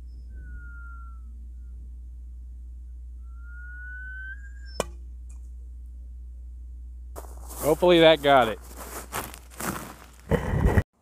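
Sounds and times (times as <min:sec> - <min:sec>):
whistling arrow in flight: 0:00.0 - 0:01.8, 0:03.2 - 0:05.1.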